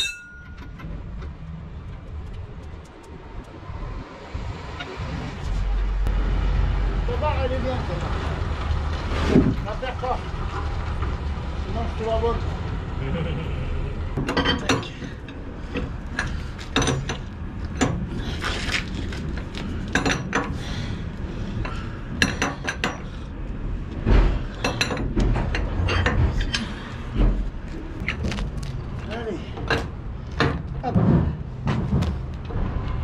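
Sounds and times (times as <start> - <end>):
metal tools clinking: 0.0 - 0.9
low rumble: 0.0 - 14.3.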